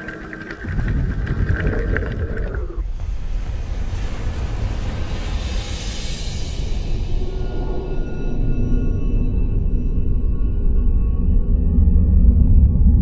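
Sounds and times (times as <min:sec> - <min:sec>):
scattered clicks: 0:00.0 - 0:02.8
underwater rumble: 0:00.0 - 0:02.8.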